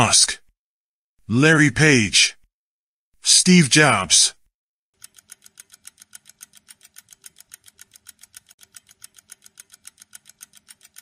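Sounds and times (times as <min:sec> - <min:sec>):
timer ticking: 0:05.0 - 0:11.0.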